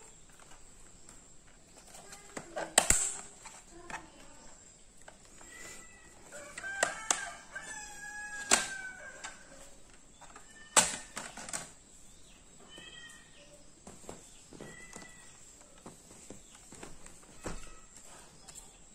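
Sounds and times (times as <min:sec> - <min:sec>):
plastic clicks and snaps: 0:01.8 - 0:04.3, 0:08.4 - 0:11.8
rooster crowing: 0:06.3 - 0:09.7.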